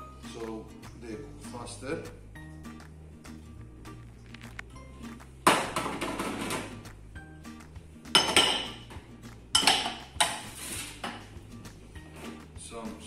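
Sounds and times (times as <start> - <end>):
ceramic bowl clattering on metal: 8.2 - 10.4.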